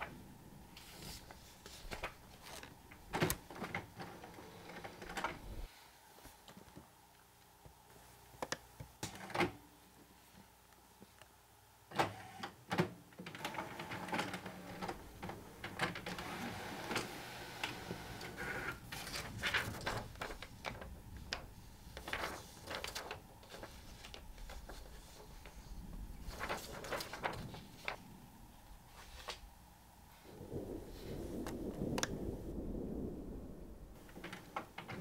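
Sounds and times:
inkjet printer printing: 11.9s - 25.6s.

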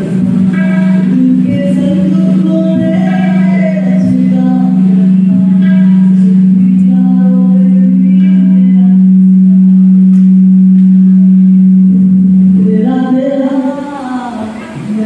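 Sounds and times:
boy singing into microphone: 0.0s - 9.1s, 12.6s - 15.0s
loud steady low tone: 0.0s - 15.0s.

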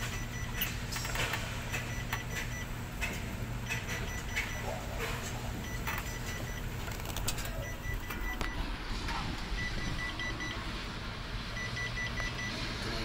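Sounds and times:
short high warning beeps: 0.0s - 0.7s, 3.7s - 4.8s, 7.5s - 8.6s, 9.5s - 10.6s
steady low hum: 0.0s - 13.0s.

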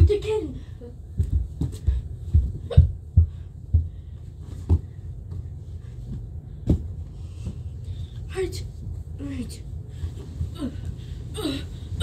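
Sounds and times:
bare feet thudding up stairs: 1.1s - 7.7s.

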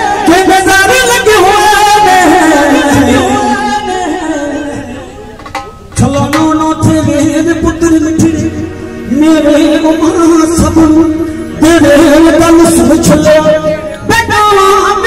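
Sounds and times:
keyboard: 0.0s - 15.0s
man singing devotional song: 0.0s - 15.0s
dholak drum strikes: 5.4s - 7.4s.

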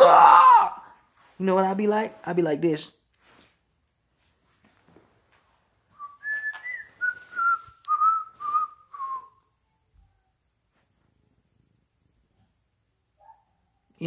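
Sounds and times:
man whistling a tune: 6.0s - 9.4s.

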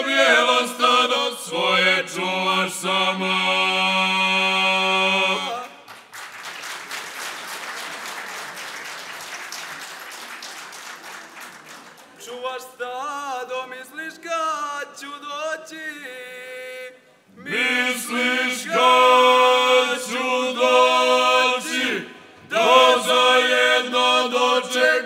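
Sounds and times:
male choir holding chord: 0.0s - 5.7s, 17.5s - 25.0s
audience applauding: 5.9s - 12.3s.

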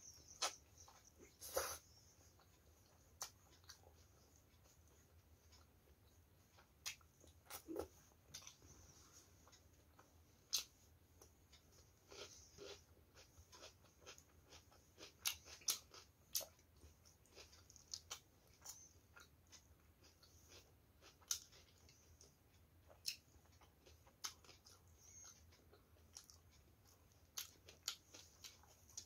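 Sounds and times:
chewing and wet mouth sounds: 0.2s - 29.0s.

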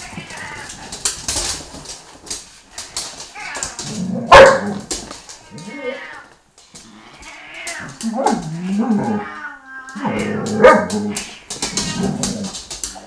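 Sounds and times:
scuffling and paw clicks: 0.0s - 13.0s
dogs growling and yipping: 3.8s - 4.9s, 7.7s - 13.0s.

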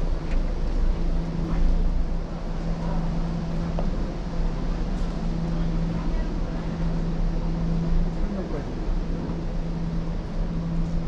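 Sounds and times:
constant low hum: 0.0s - 11.0s
traffic rumble: 0.0s - 11.0s.

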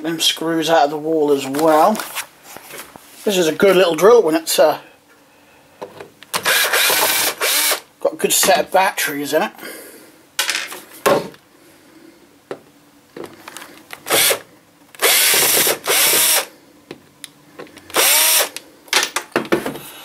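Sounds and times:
cordless drill motor whine: 6.4s - 7.8s, 14.1s - 14.4s, 15.0s - 16.5s, 17.9s - 18.6s.

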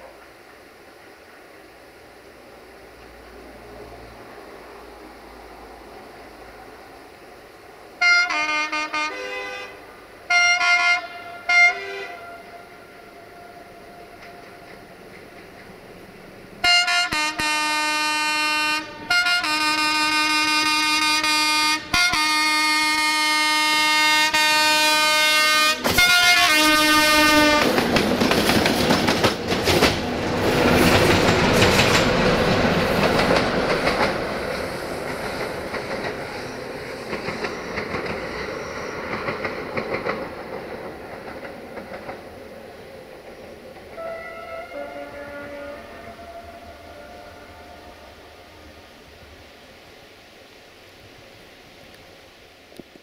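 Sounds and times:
locomotive horn blasts: 8.0s - 13.1s, 16.6s - 27.8s, 43.9s - 48.6s
wheels clacking over rail joints: 13.4s - 16.6s, 25.8s - 44.6s.

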